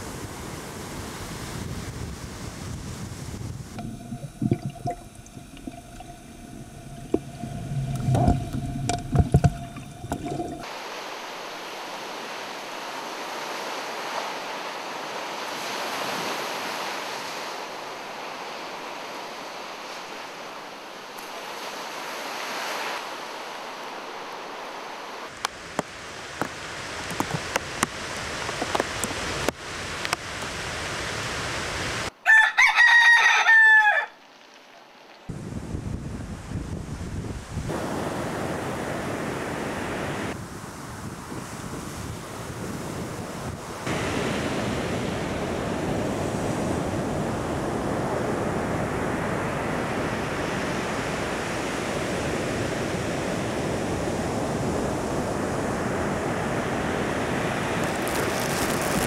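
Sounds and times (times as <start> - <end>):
rooster crowing: 32.2 - 34.2
surf breaking: 57.0 - 59.0.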